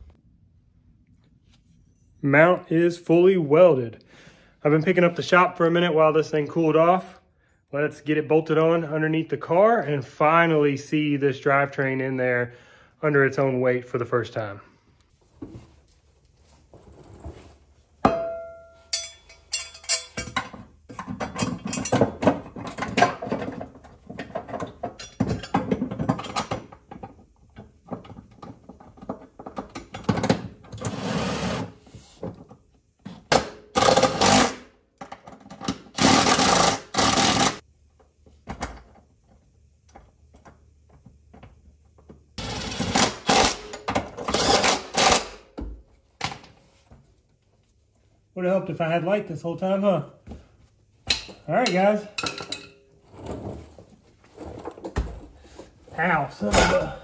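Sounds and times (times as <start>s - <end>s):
ringing metal clang: 18.0s - 20.2s
tools clicking and rattling: 18.9s - 27.1s.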